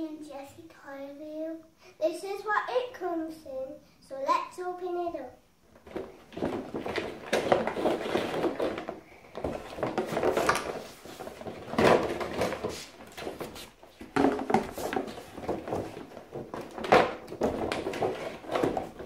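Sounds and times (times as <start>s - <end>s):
plastic packaging rustling: 5.7s - 19.0s
cardboard boxes being handled: 5.8s - 19.0s.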